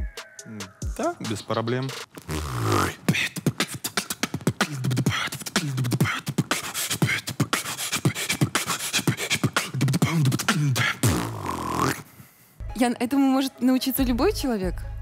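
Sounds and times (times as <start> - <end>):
beatboxing kick and snare clicks: 1.0 - 12.0.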